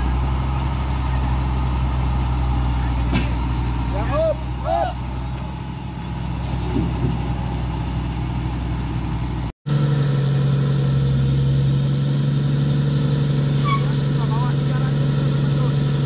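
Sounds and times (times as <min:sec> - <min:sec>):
heavy diesel engines idling: 0:00.0 - 0:16.0.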